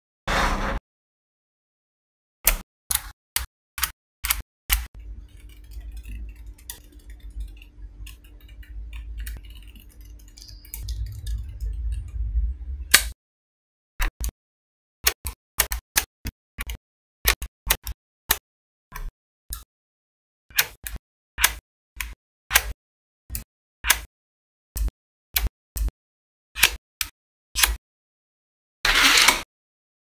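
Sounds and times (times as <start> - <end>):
low handling rumble: 10.8 - 13.1.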